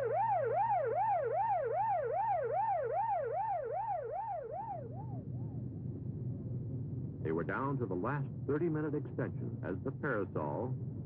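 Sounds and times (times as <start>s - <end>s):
vehicle siren yelping: 0.0s - 5.6s
steady low hum: 0.0s - 11.0s.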